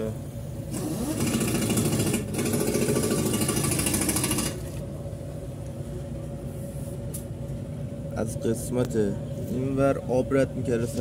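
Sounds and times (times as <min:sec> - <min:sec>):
low steady hum: 0:00.0 - 0:11.0
rapid mechanical rattle: 0:00.6 - 0:04.8.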